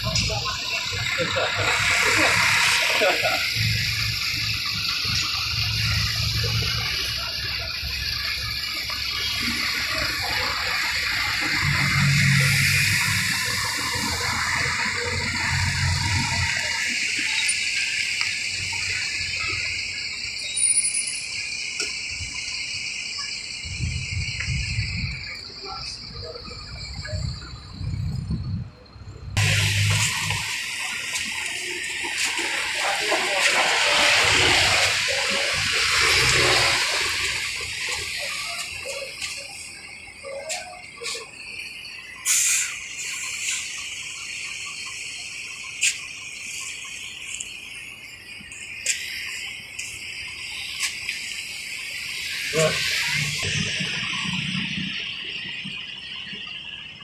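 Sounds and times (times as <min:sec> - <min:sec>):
bus engine rumble: 0:00.0 - 0:20.5, 0:21.3 - 0:57.0
insects chirring: 0:00.0 - 0:57.0
short loud hiss: 0:42.2 - 0:43.8.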